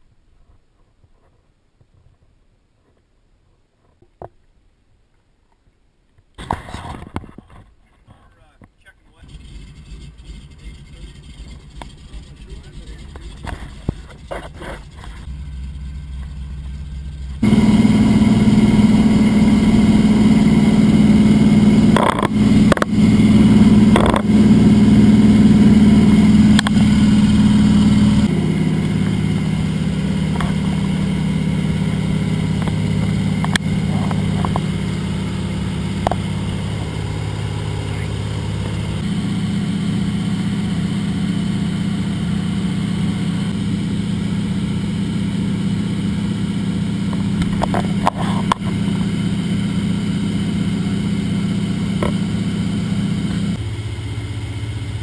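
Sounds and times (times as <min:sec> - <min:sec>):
plane engine and propeller droning: 0:09.1 - 0:55.0.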